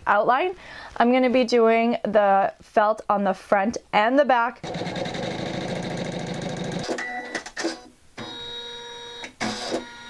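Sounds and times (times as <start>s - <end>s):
machine humming: 4.6s - 7.0s
embroidery machine stitching: 4.6s - 7.9s.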